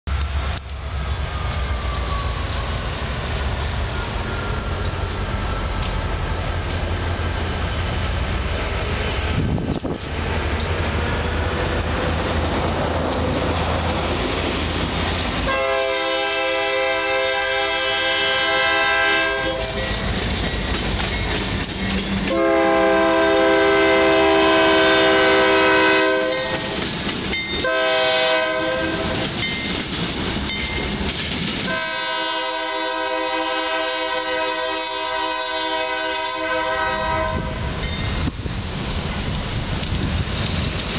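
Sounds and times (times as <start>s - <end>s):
locomotive engine rumble: 0.0s - 40.9s
steel wheels rolling on rail: 0.1s - 40.9s
locomotive air horn blasts: 15.5s - 19.9s, 22.3s - 26.8s, 27.6s - 29.2s, 31.7s - 37.8s.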